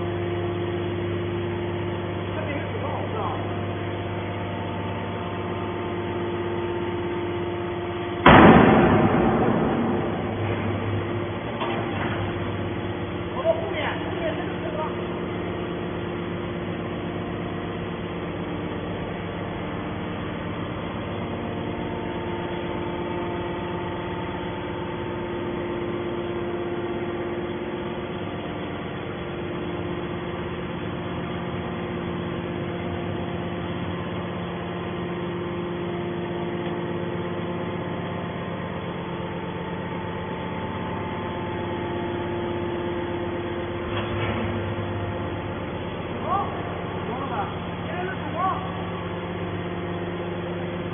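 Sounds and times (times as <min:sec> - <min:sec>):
hydraulic pump machine hum: 0:00.0 - 0:50.9
thump: 0:08.2 - 0:12.3.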